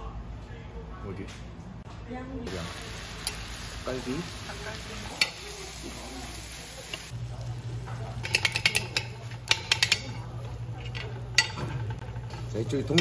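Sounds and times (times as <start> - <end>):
spoons and dishes clinking: 8.0 - 13.0.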